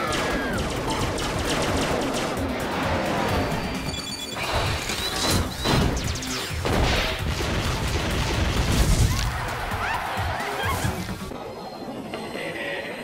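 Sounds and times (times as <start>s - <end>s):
background music: 0.0s - 13.0s
explosions and crashes: 4.5s - 9.4s.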